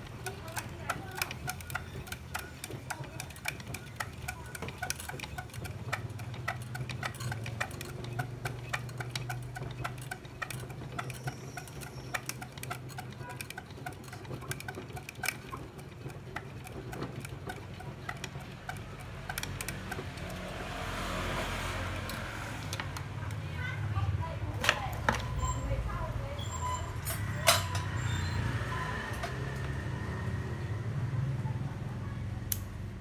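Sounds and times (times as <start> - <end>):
fast uneven ticking: 0.0 - 23.9.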